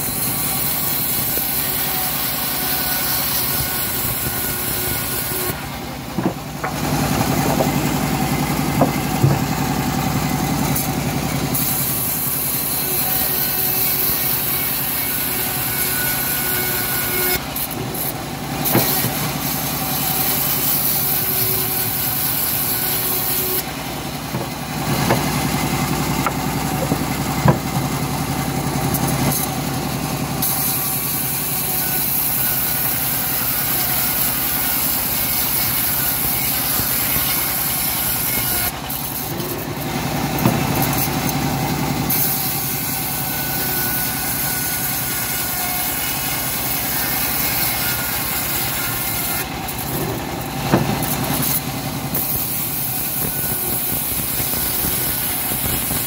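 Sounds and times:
bandsaw cutting wood: 0.0s - 56.0s
sharp knocks: 6.1s - 8.0s, 8.7s - 9.6s, 24.3s - 25.4s, 26.2s - 27.8s.

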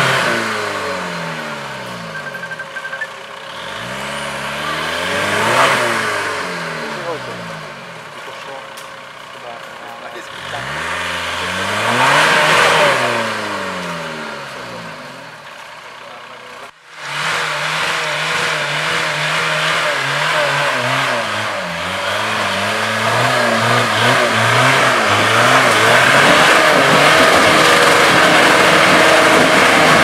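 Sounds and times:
off-road vehicle engine revving: 0.0s - 30.0s.

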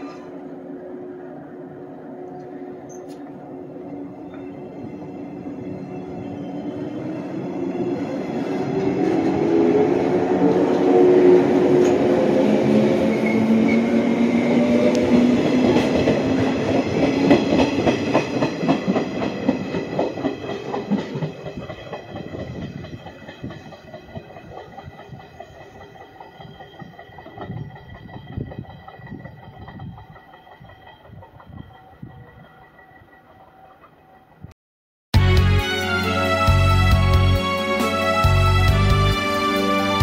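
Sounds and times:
electric train humming: 0.0s - 34.5s, 35.2s - 40.0s
train wheels clacking on rail joints: 14.2s - 34.1s.

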